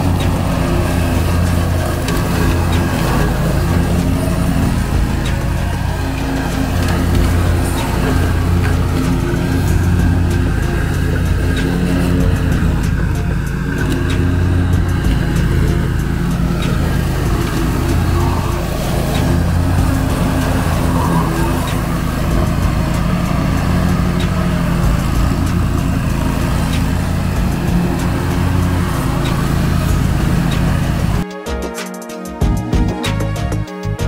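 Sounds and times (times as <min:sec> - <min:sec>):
ride-on mower engine running: 0:00.0 - 0:31.2.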